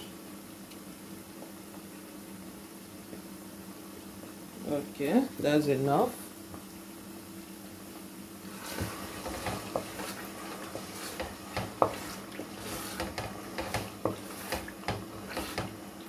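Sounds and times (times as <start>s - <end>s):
wooden spoon stirring stew: 8.5s - 15.8s.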